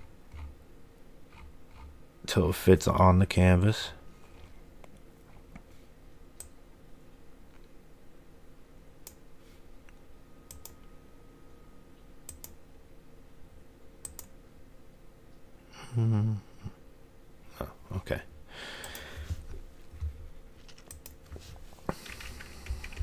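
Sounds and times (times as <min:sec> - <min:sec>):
low steady hum: 0:00.0 - 0:23.0
computer mouse clicks: 0:10.5 - 0:10.8, 0:12.2 - 0:12.6, 0:14.0 - 0:14.4, 0:18.8 - 0:19.1, 0:20.7 - 0:21.2, 0:21.9 - 0:23.0.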